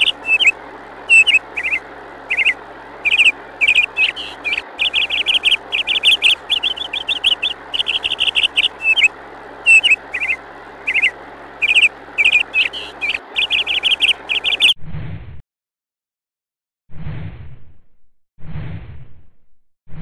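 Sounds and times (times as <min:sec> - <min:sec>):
birds chirping trills: 0:00.0 - 0:14.8.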